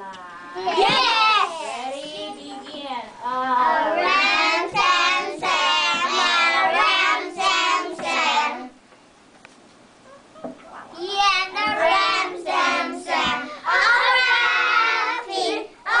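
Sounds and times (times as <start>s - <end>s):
children singing: 3.4s - 8.7s, 11.6s - 16.0s.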